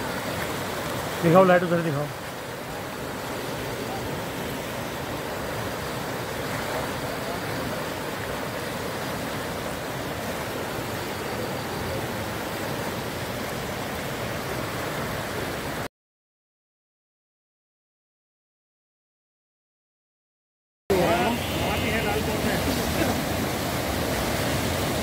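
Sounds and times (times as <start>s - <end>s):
flooded river rushing: 0.0s - 15.9s, 20.9s - 25.0s.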